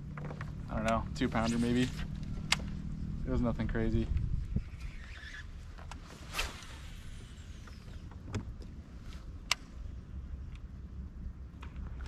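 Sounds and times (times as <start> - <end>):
steady low rumble: 0.0 - 12.0
fishing line whizzing off reel: 4.6 - 8.1.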